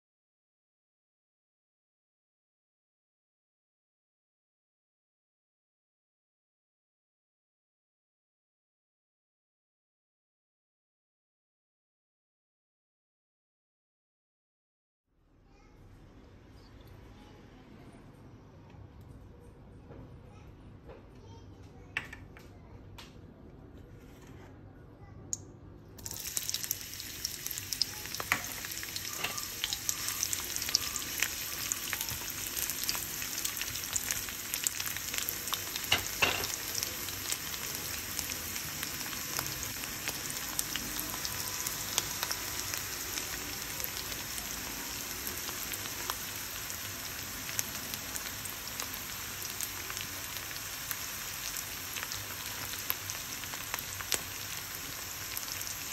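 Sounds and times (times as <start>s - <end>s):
oil ticking in a wok: 26.0s - 34.0s
onions sizzling in oil: 26.0s - 55.9s.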